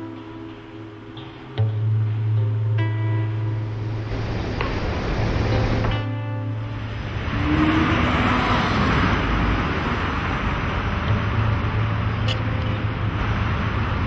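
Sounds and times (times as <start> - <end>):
road traffic noise: 2.8 - 14.0.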